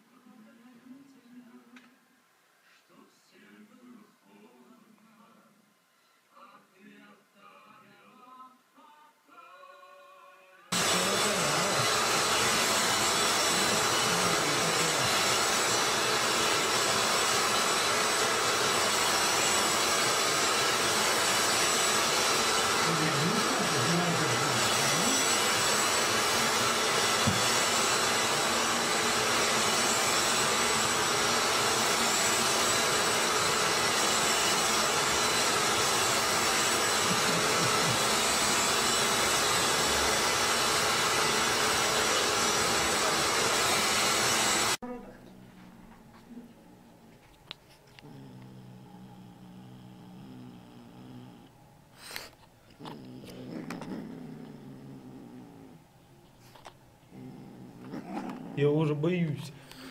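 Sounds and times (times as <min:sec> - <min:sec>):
vacuum cleaner running: 0:10.7 - 0:47.0, 0:47.9 - 0:51.4, 0:57.1 - 0:59.9.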